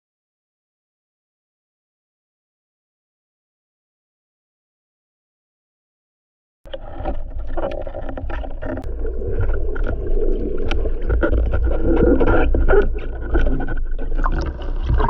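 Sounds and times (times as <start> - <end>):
underwater water rush: 6.7 - 15.0.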